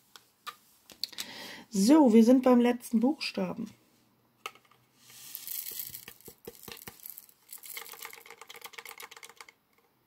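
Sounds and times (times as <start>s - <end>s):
small beads rattling in plastic tray: 5.2s - 9.9s.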